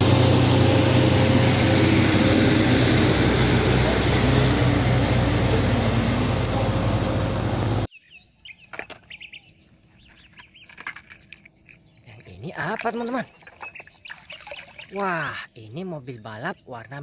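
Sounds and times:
diesel truck driving past: 0.0s - 7.9s.

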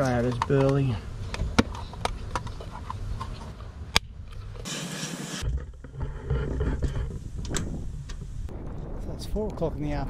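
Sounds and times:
wind buffeting microphone: 6.0s - 10.0s.

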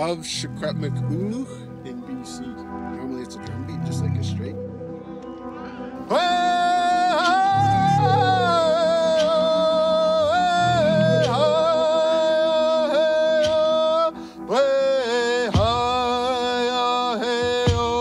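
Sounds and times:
man singing unaccompanied: 6.1s - 18.0s.

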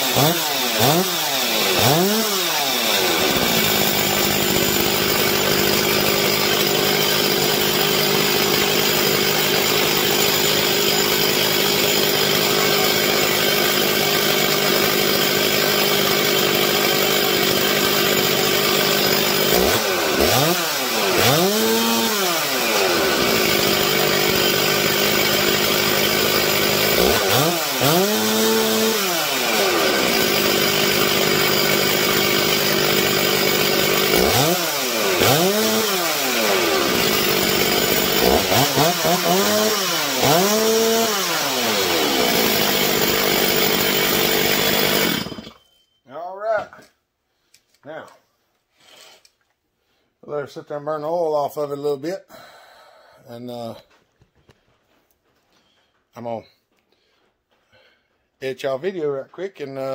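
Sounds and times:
chainsaw engine idling and revving: 0.0s - 45.6s.

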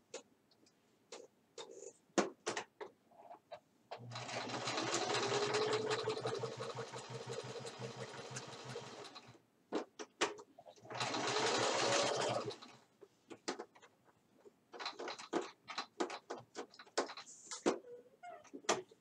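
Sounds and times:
sewing machine clicks: 4.0s - 9.4s
sewing machine stitching: 4.0s - 9.4s, 10.8s - 12.8s.

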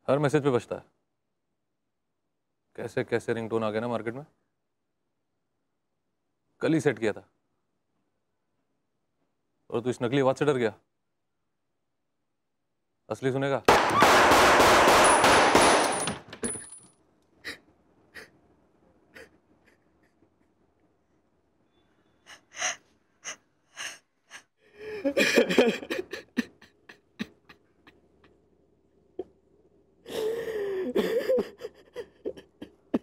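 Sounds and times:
pistol shot: 13.7s - 16.0s
woman gasping and sobbing: 17.4s - 20.6s, 22.3s - 28.4s, 30.0s - 33.0s
woman crying: 19.1s - 20.5s, 22.3s - 28.4s, 30.1s - 33.0s.

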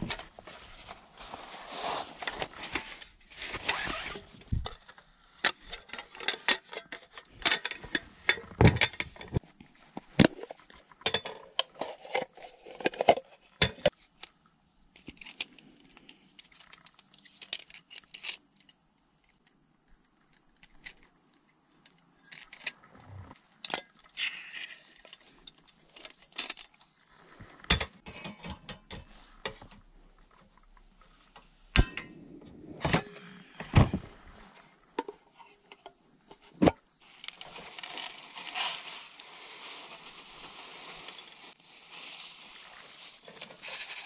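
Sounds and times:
faint high hiss: 11.8s - 44.0s.

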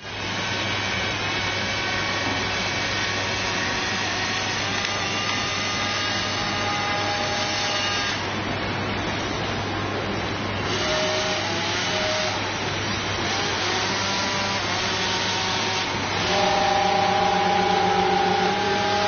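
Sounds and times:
model hovercraft fans whirring: 0.0s - 19.0s
high whining tones: 14.6s - 19.0s.

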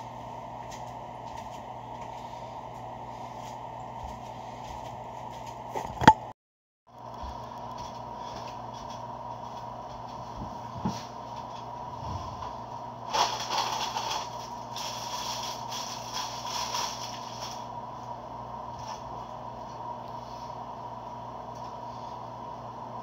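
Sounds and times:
steady background hum: 0.0s - 6.3s, 6.9s - 23.0s
paper wrappers crinkling: 13.0s - 17.7s.

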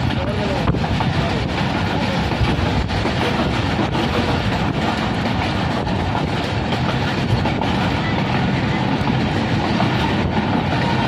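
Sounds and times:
rail joint clicks: 0.0s - 11.0s
train wheels rumbling on rails: 0.0s - 11.0s.

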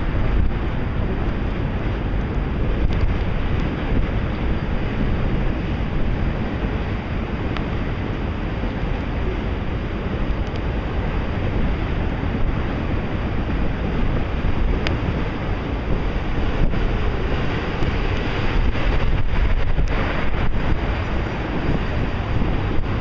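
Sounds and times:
train wheels rumbling on rails: 0.0s - 23.0s
wind buffeting microphone: 0.0s - 23.0s
faint clicks: 10.3s - 10.7s.

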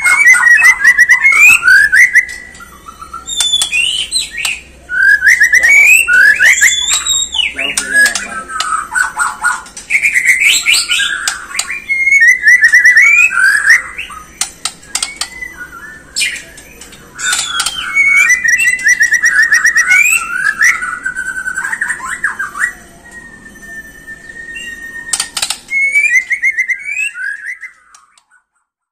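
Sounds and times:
bird singing whistles and trills: 0.0s - 28.7s
sharp clicks: 3.3s - 4.6s, 14.4s - 15.4s, 25.1s - 25.8s.

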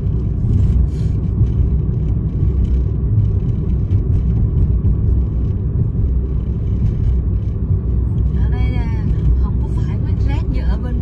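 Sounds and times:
car driving on road: 0.0s - 11.0s.

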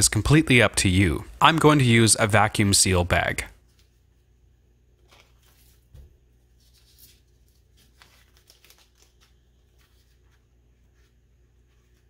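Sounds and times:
plastic bag crinkling: 6.6s - 10.2s.

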